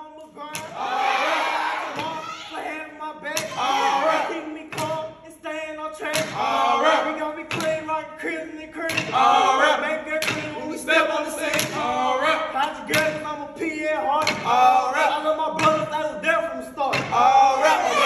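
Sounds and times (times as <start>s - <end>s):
men chanting in unison: 0.4s - 18.0s
canes knocking on wooden stage: 1.9s - 2.3s, 3.3s - 3.6s, 4.7s - 5.1s, 7.5s - 7.9s, 8.9s - 9.2s, 10.2s - 10.6s, 14.2s - 14.6s, 16.9s - 17.3s.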